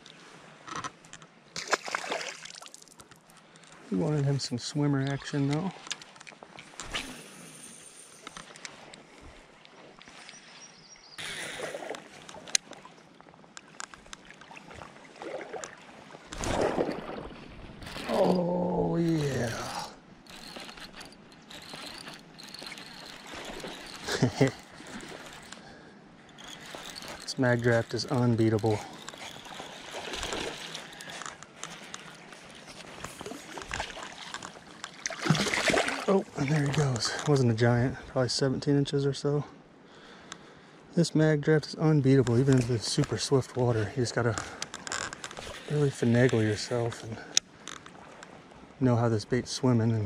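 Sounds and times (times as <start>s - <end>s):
creek water sloshing: 0.0s - 7.1s, 8.2s - 37.5s
fish splashing in water: 14.4s - 18.4s, 33.4s - 36.1s
fishing reel ticking: 17.8s - 32.3s.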